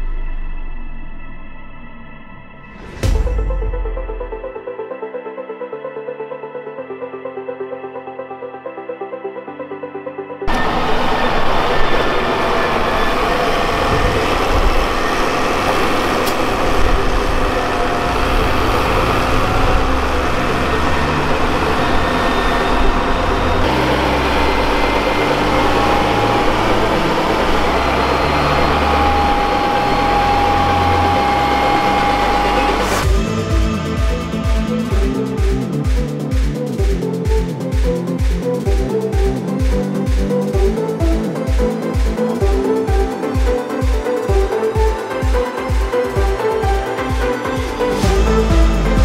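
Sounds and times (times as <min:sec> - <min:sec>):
thin steady whine: 0:10.5 - 0:35.3
tractor engine running: 0:10.5 - 0:36.0.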